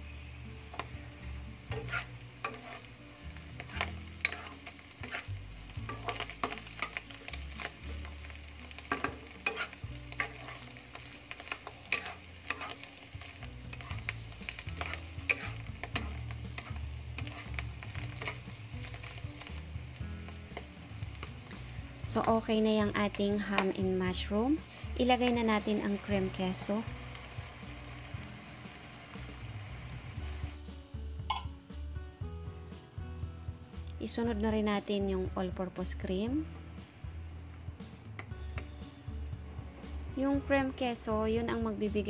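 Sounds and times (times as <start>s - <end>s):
food sizzling in a wok: 0.0s - 31.1s, 33.7s - 42.0s
wooden spatula scraping pan: 1.7s - 7.8s, 8.8s - 19.0s.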